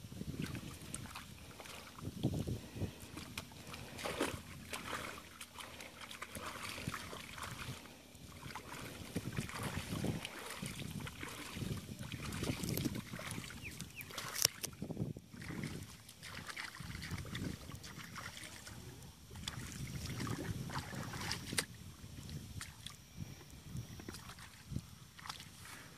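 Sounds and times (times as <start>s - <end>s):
muddy water sloshing and splashing: 0.0s - 25.9s.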